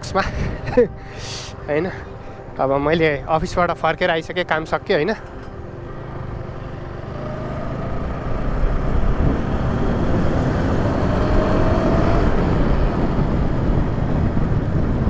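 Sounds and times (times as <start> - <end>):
wind noise on microphone: 8.4 - 15.0.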